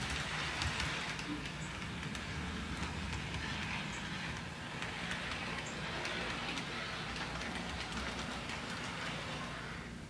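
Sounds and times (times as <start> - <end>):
clicks over rail joints: 0.0 - 9.6
model train wheels rolling: 0.0 - 10.0.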